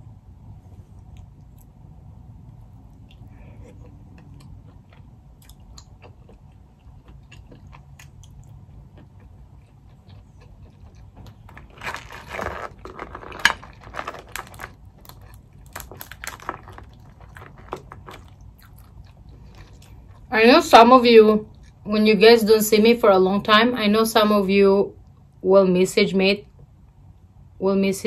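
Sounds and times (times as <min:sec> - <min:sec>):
quiet chewing: 0:00.8 - 0:01.8, 0:02.4 - 0:20.3
shells cracking and snapping: 0:11.2 - 0:18.8.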